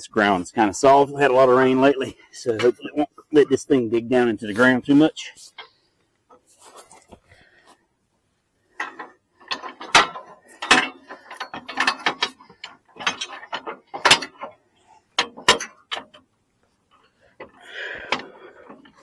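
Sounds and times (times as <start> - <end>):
metal parts knocking and rattling: 8.7 - 19.0.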